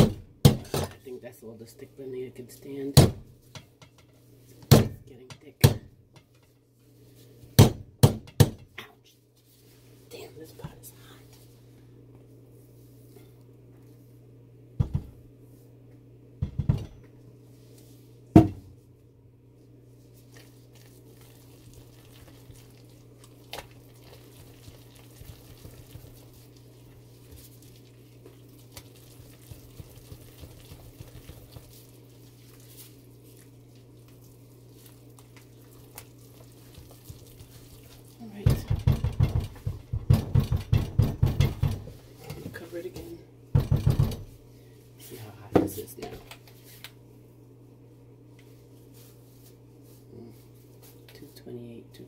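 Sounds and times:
knocks on metal pot: 0:00.0 - 0:00.9, 0:07.6 - 0:08.7, 0:16.4 - 0:16.9, 0:18.4 - 0:18.6, 0:38.4 - 0:41.9, 0:43.5 - 0:44.2
steady low hum: 0:00.0 - 0:52.0
spatula scraping soap paste: 0:20.2 - 0:38.3.

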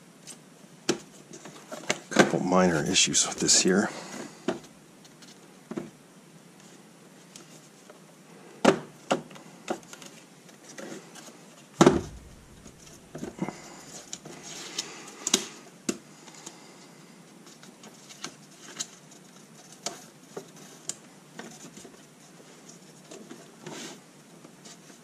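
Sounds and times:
heavy thump: 0:11.8 - 0:14.2.

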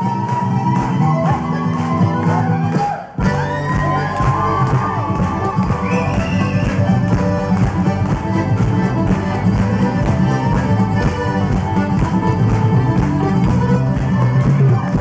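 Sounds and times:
accordion: 0:00.0 - 0:15.0
concertina: 0:00.0 - 0:15.0
fiddles playing lively tune: 0:00.0 - 0:15.0
guitar: 0:00.0 - 0:15.0
frame drum beating steady rhythm: 0:03.2 - 0:15.0.

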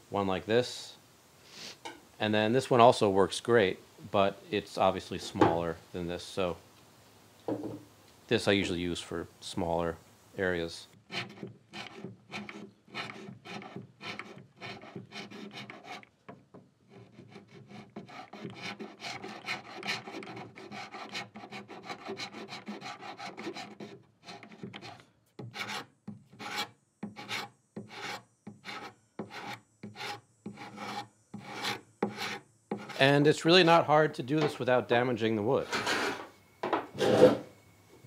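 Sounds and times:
hand scraper rasping on wood: 0:11.1 - 0:16.1, 0:16.9 - 0:33.1.

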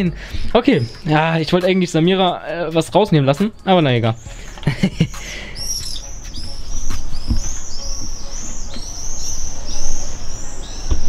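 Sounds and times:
small bird chirping: 0:00.3 - 0:11.0.

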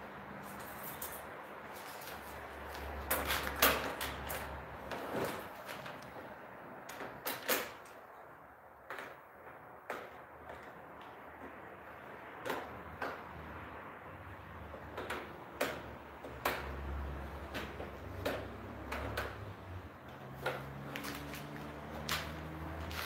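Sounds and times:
plastic window frame knocking: 0:08.8 - 0:13.4.

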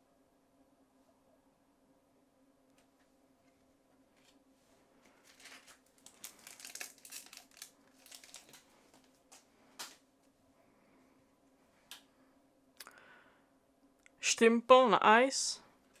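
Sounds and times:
card pack wrapper tearing and crinkling: 0:05.2 - 0:08.7.

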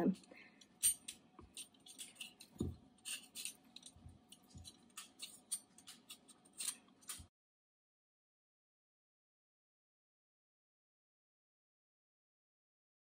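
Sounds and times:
vegetable peeler scraping squash: 0:00.8 - 0:07.3.

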